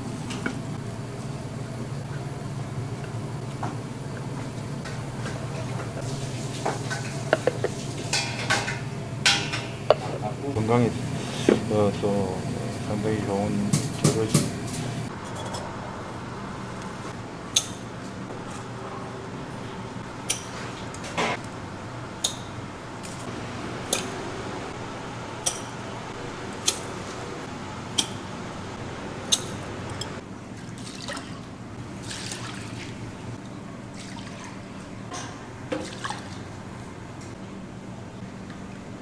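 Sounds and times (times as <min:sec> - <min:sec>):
steady low hum: 0:00.0 - 0:32.1
liquid sloshing and dripping: 0:30.5 - 0:34.9, 0:35.7 - 0:36.6.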